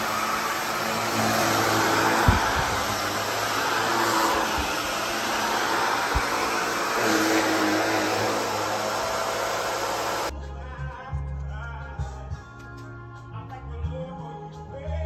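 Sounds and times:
vacuum cleaner running on carpet: 0.0 - 10.3.

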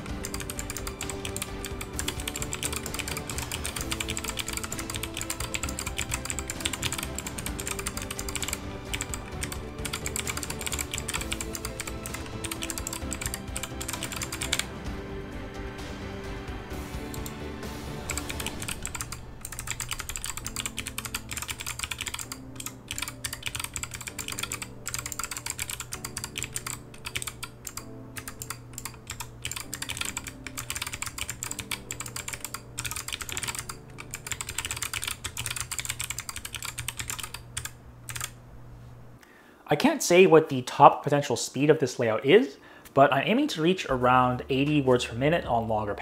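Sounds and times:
mechanical keyboard typing: 0.0 - 14.9, 16.9 - 17.4, 18.0 - 38.4
background music: 0.0 - 38.4, 39.2 - 46.0.

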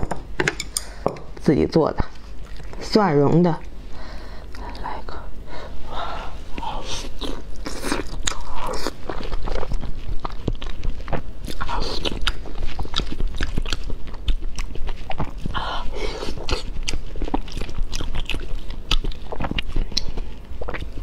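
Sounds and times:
person biting and chewing: 6.8 - 15.6, 16.2 - 21.0.

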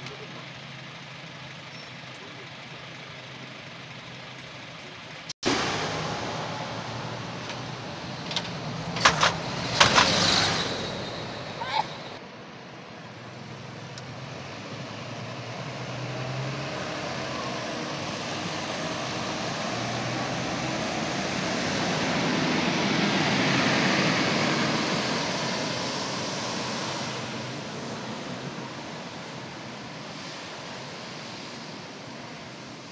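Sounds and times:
bus engine running: 0.0 - 32.9
vehicle passing close: 5.5 - 12.2.

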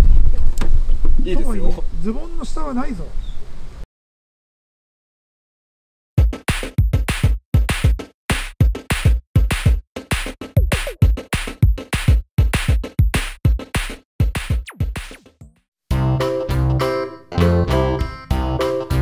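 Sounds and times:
electronic music with drum-machine beat: 6.2 - 19.0.

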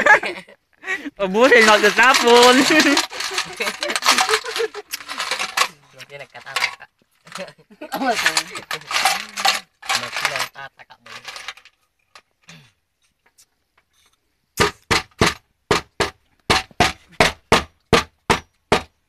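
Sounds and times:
voices: 0.0 - 11.3.

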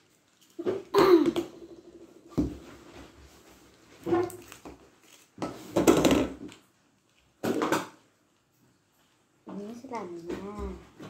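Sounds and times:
plastic wrapping crinkling: 0.0 - 1.0, 2.7 - 10.3.

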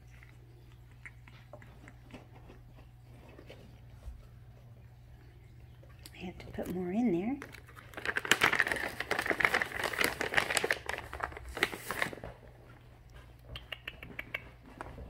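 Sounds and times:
plastic feeder crinkling and clicking: 6.4 - 12.4.

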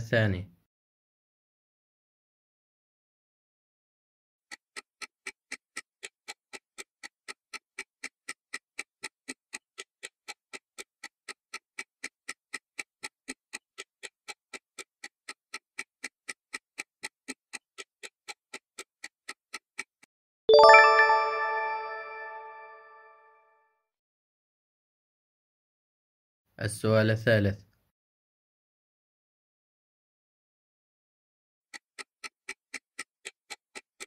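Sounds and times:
fast clock ticking: 4.5 - 20.1, 31.7 - 34.0
bright bell chime: 20.5 - 23.1.

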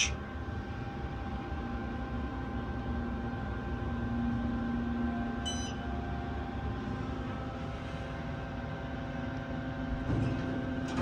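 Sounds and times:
elevator hum: 0.0 - 11.0
short high beep: 5.5 - 5.8.

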